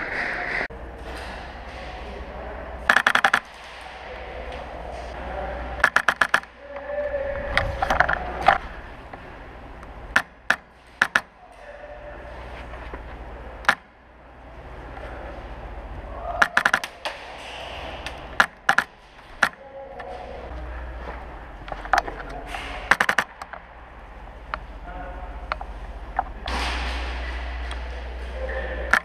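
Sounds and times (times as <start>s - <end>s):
airsoft guns firing: 2.8s - 4.5s, 5.8s - 6.6s, 10.1s - 11.6s, 16.4s - 19.6s, 22.5s - 23.6s.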